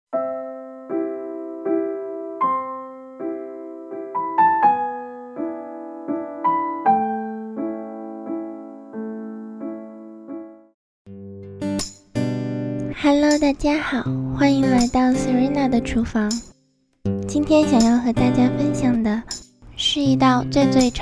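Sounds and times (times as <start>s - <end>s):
soft piano chords: 0.1s - 10.7s.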